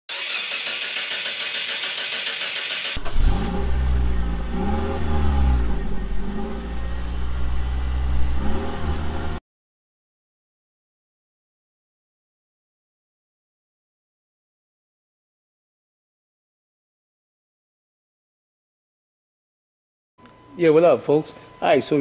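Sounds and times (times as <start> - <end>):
car engine revving: 0.1 - 9.4.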